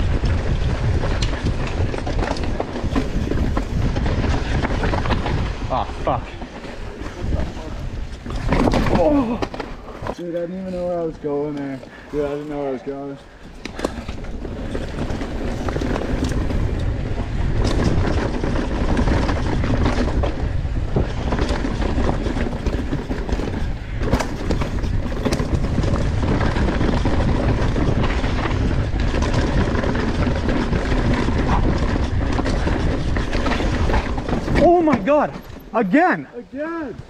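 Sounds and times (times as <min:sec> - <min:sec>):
bike clattering: 0:00.0 - 0:36.0
tyres rolling over dirt and rock: 0:00.0 - 0:36.2
wind rush on microphone: 0:00.0 - 0:37.0.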